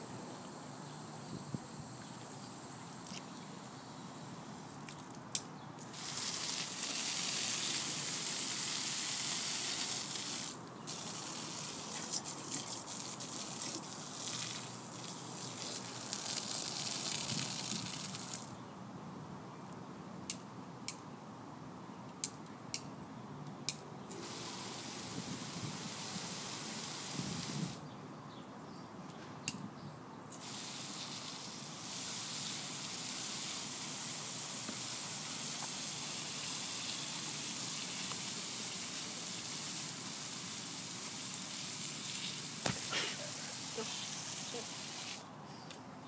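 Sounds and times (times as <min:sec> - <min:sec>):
water spraying hiss: 0:05.8 - 0:18.6, 0:24.2 - 0:27.8, 0:30.3 - 0:45.3.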